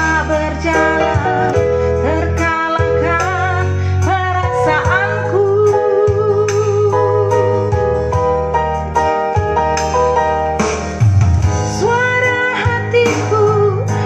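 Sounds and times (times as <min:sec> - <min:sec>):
woman singing a ballad: 0:00.0 - 0:08.2, 0:11.7 - 0:14.0
backing music with guitar: 0:00.0 - 0:14.0.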